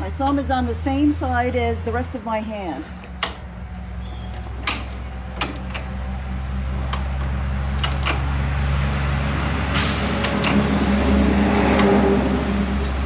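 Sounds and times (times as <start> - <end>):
steady low hum: 0.0 - 13.0
short rush of air: 9.6 - 10.3.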